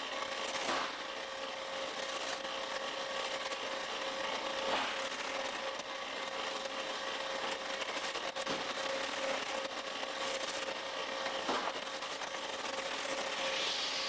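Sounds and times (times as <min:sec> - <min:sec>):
machine hum and hiss: 0:00.0 - 0:14.0
loud swishes: 0:13.2 - 0:14.0.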